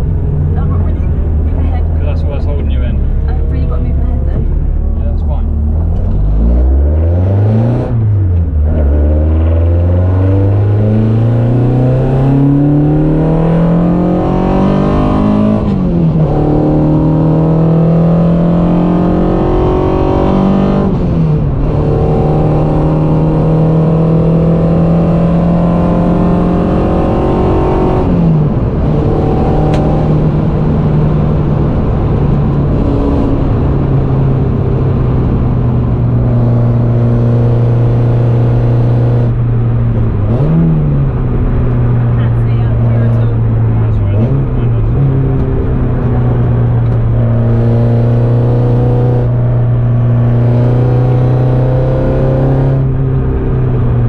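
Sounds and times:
car engine accelerating: 0:00.0 - 0:54.0
road and wind noise: 0:00.0 - 0:54.0.

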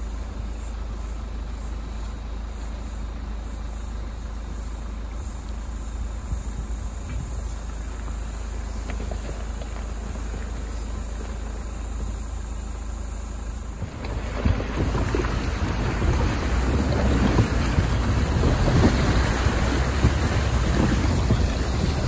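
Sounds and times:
vehicle engine running low: 0:00.0 - 0:22.0
creek water splashing: 0:07.6 - 0:22.0.

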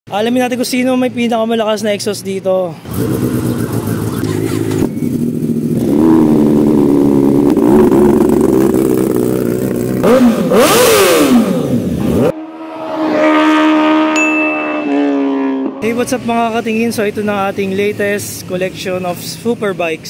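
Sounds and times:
motorcycle engines revving: 0:02.8 - 0:20.0
electronic tone: 0:12.4 - 0:15.8.

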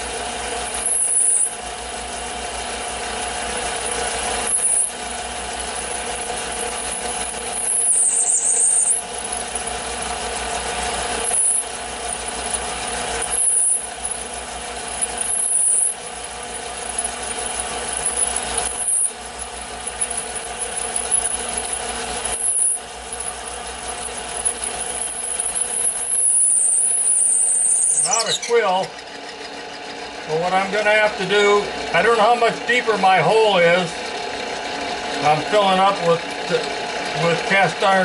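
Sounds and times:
drill bit rasping metal: 0:00.0 - 0:32.9, 0:33.6 - 0:38.0
lathe motor hum: 0:00.0 - 0:38.0
loud metal scrape: 0:17.9 - 0:30.1.

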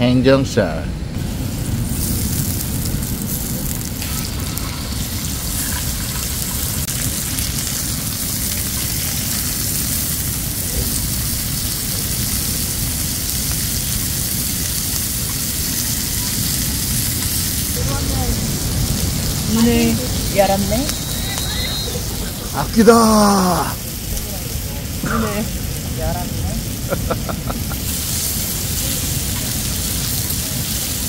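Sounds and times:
meat sizzling on griddle: 0:01.2 - 0:31.0
low rumble: 0:15.1 - 0:22.8.

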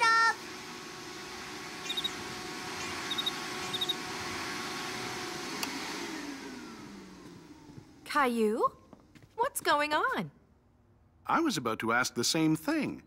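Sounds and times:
vacuum cleaner humming: 0:00.0 - 0:09.3
cricket chirps: 0:01.8 - 0:02.2, 0:03.1 - 0:04.0
vacuum switch click: 0:05.6 - 0:05.8.

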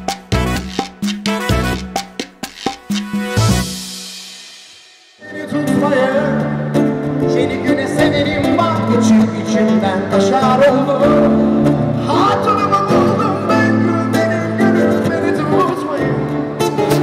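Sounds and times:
acoustic guitar: 0:05.2 - 0:17.0
man singing into microphone: 0:05.2 - 0:17.0.

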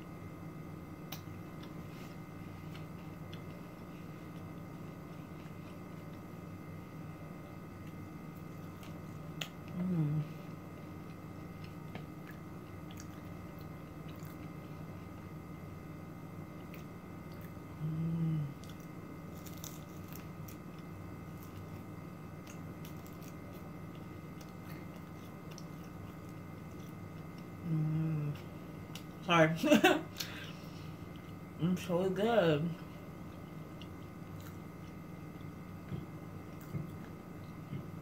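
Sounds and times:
steady background hum: 0:00.0 - 0:38.0
person chewing crunchy food: 0:07.7 - 0:15.3, 0:16.5 - 0:17.8, 0:18.6 - 0:27.6, 0:33.2 - 0:37.9
person humming mm: 0:09.7 - 0:10.5, 0:17.8 - 0:18.7, 0:27.6 - 0:28.5.

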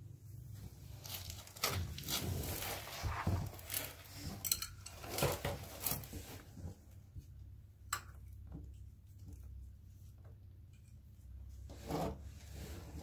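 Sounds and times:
rustling and knocking handling noise: 0:00.6 - 0:10.9.

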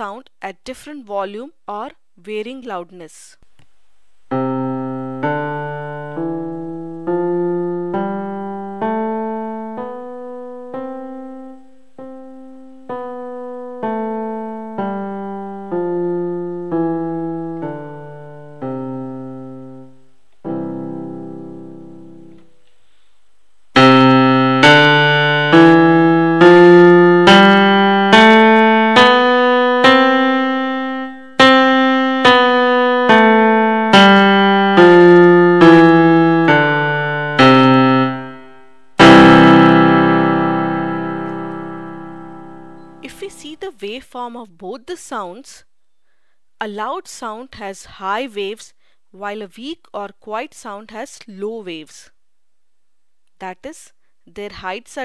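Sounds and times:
electronic keyboard playing a tune: 0:04.3 - 0:23.0, 0:23.8 - 0:45.1.

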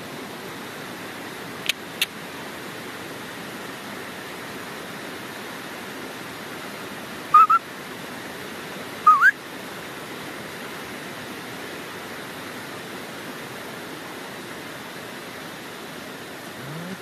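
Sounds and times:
dog whining: 0:16.6 - 0:17.0.

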